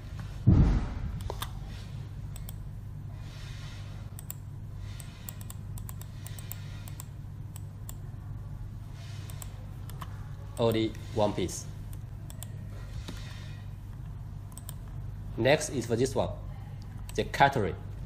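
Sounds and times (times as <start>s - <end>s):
low electrical hum: 0.0s - 18.0s
thump on microphone: 0.5s - 1.1s
computer mouse clicking: 1.2s - 1.6s, 2.3s - 2.6s, 4.2s - 8.0s, 9.1s - 11.0s, 11.9s - 13.2s, 13.9s - 15.0s.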